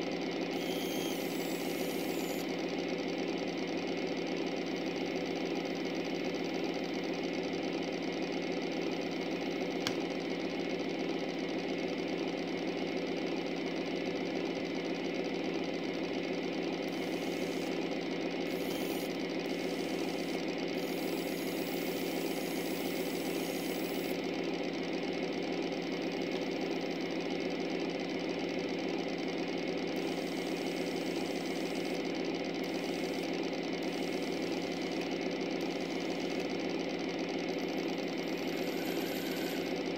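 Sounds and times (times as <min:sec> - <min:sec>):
model train motor humming: 0:00.5 - 0:02.6, 0:16.9 - 0:24.2, 0:29.9 - 0:39.9.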